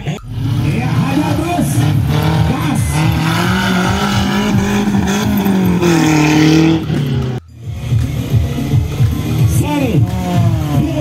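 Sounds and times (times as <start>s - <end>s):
buggy engine running hard: 0.0s - 11.0s.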